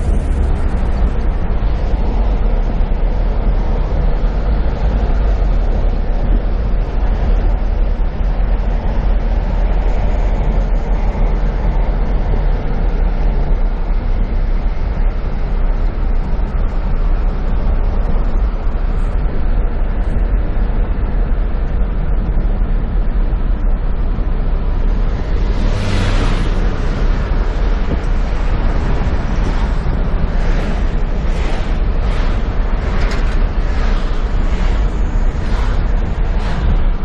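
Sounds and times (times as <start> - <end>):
passing cars rushing: 0.0 - 2.8, 24.9 - 37.0
car engine and road rumble: 0.0 - 37.0.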